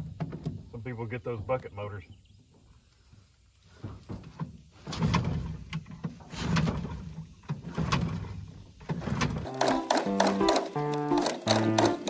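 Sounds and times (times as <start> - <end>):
outboard engine recoil starter pulls: 4.8 - 12.0
engine turning over: 8.9 - 12.0.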